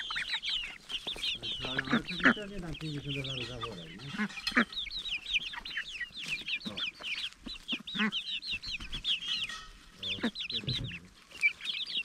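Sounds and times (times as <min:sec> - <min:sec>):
young hens cheeping: 0:00.0 - 0:12.0
beaks tapping on enamel pot: 0:02.3 - 0:04.9.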